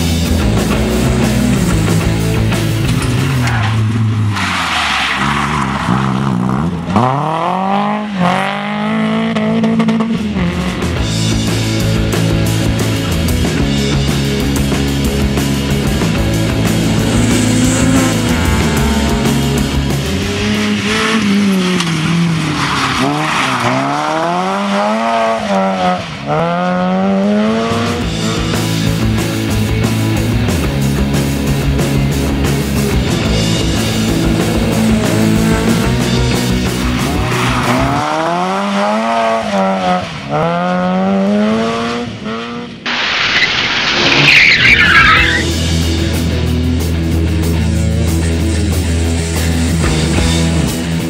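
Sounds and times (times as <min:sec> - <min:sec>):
rally car engine revving: 0:00.0 - 0:51.0
car sliding on gravel: 0:16.5 - 0:24.8, 0:42.9 - 0:45.5
tyres sliding on gravel: 0:42.9 - 0:45.4.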